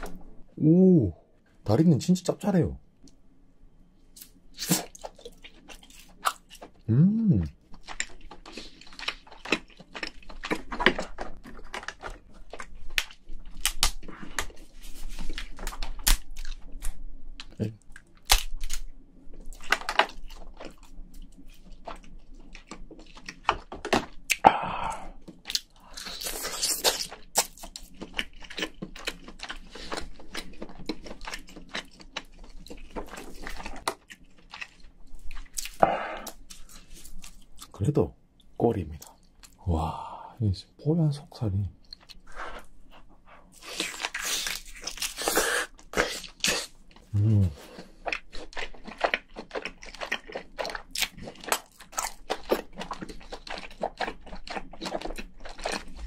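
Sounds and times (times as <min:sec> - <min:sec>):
chewing and crunching: 0:04.1 - 0:37.8, 0:41.8 - 0:56.0
crayfish shell cracking: 0:12.9 - 0:14.5, 0:18.0 - 0:18.9.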